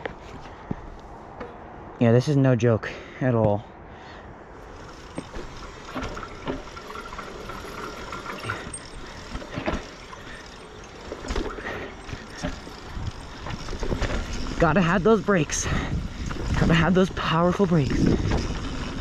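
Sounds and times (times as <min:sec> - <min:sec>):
bike knocking and rattling on rocks: 0:04.6 - 0:19.0
bike tyres crunching over dirt: 0:04.6 - 0:19.0.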